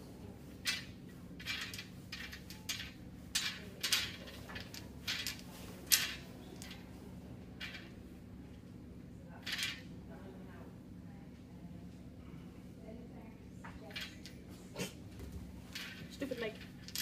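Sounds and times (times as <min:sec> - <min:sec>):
wooden beads clacking: 0:00.6 - 0:06.8, 0:07.6 - 0:08.0, 0:09.4 - 0:09.8, 0:15.7 - 0:17.0.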